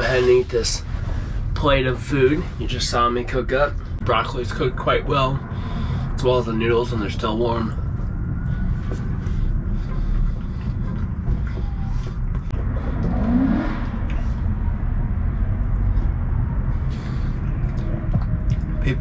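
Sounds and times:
car engines rumbling: 0.0 - 19.0
engine revving up: 12.5 - 19.0.

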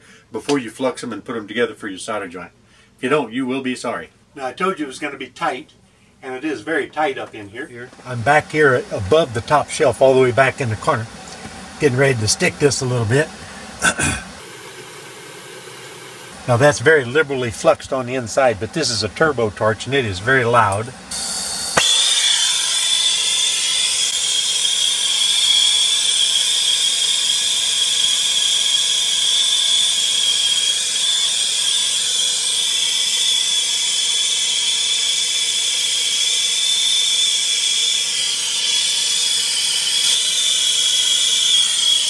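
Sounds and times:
torch flame hissing: 13.7 - 16.6, 21.1 - 42.0
high whistling tone: 14.4 - 16.4, 21.1 - 42.0.

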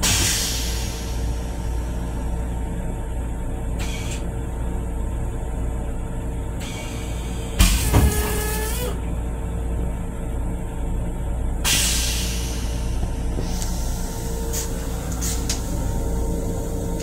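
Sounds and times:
railcar rumble and hum: 0.0 - 17.0
toilet flushing with squeal: 7.7 - 9.0.

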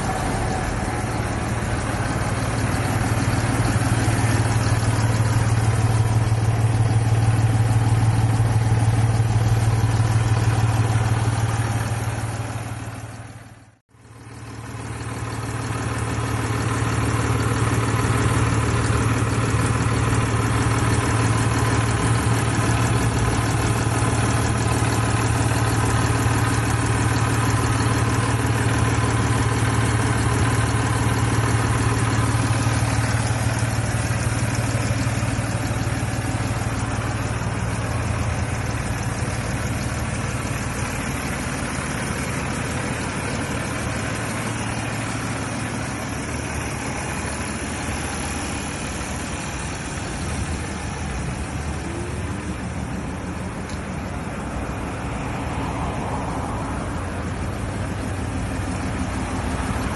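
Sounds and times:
tractor diesel engine idling: 0.0 - 59.9.

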